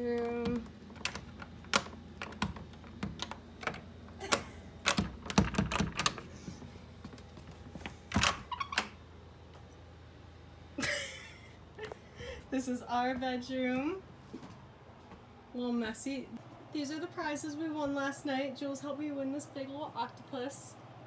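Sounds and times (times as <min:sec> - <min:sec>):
door handle and latch clicking: 0:00.2 - 0:06.3, 0:08.1 - 0:09.0.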